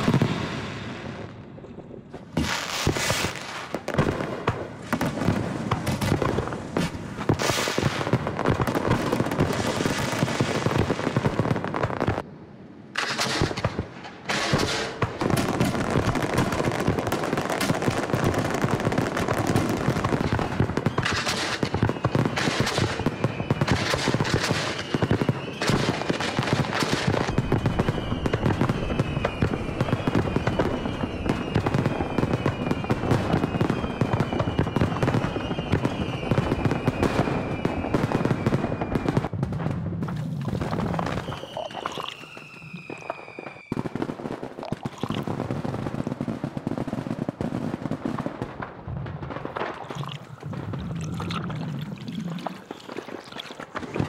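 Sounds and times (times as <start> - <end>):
fireworks crackling and banging: 0.0 - 12.3, 12.9 - 54.0.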